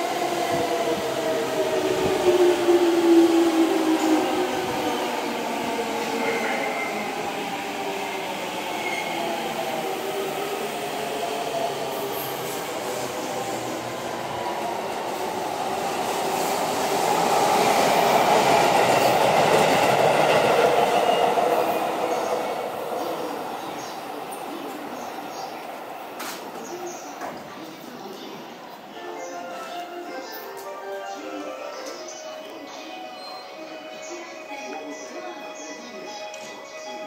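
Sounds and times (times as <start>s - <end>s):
train braking and wheel noise: 0.0s - 37.0s.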